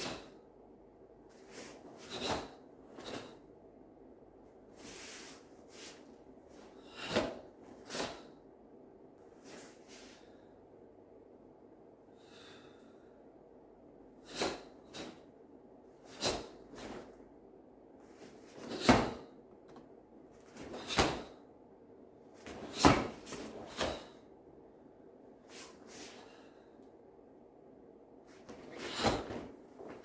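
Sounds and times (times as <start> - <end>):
karate uniform snapping and swishing: 1.3 - 3.4, 14.3 - 15.2, 18.1 - 19.2, 20.4 - 21.3, 22.4 - 24.1, 28.3 - 30.0.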